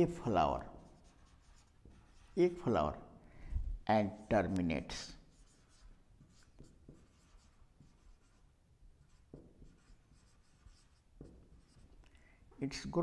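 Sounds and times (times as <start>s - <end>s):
marker squeaking on whiteboard: 0.8s - 2.6s, 5.3s - 12.0s.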